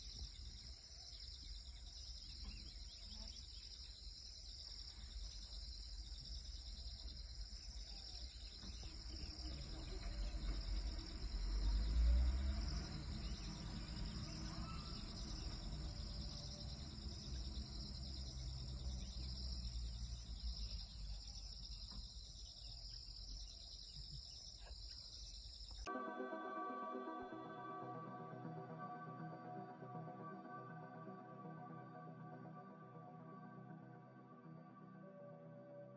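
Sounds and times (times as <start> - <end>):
high-pitched insect chorus: 0.0 - 26.0
low engine rumble: 8.6 - 22.9
music: 25.9 - 35.9.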